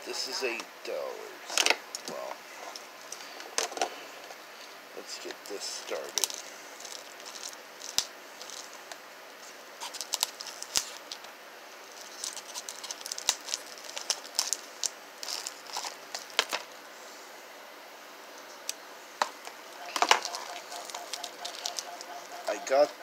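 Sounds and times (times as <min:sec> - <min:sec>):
plastic wrap crinkling: 0:05.9 - 0:09.0, 0:09.8 - 0:16.8, 0:19.2 - 0:22.8
knife scraping plastic wrap: 0:09.8 - 0:11.2, 0:12.0 - 0:16.6.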